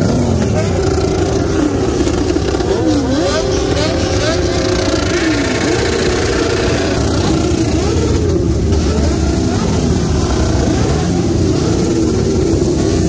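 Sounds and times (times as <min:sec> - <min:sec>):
motorcycle engines revving: 0:00.0 - 0:13.0.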